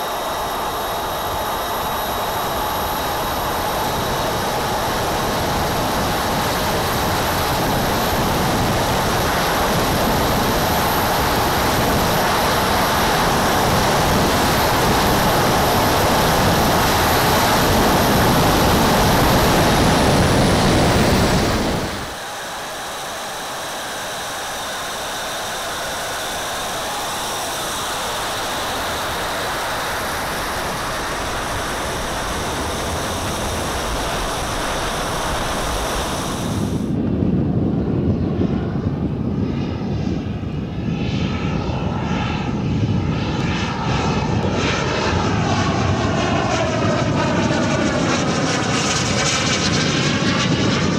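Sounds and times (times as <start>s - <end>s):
high thin turbine whine: 0.0s - 37.2s
model jet turbines roaring: 0.0s - 39.2s, 40.1s - 50.9s.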